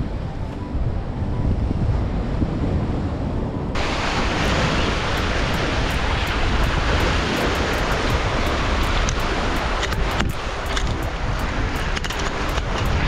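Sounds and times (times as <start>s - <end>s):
wind buffeting microphone: 0.0s - 13.0s
surf washing against rocks: 3.8s - 13.0s.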